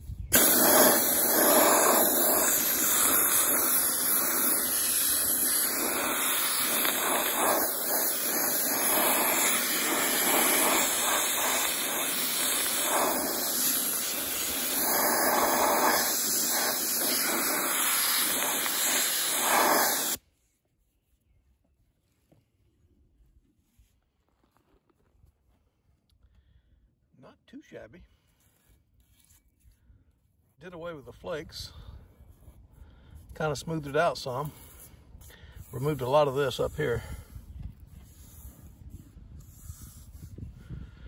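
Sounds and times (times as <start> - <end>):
soda blaster hissing: 0.3 - 20.2.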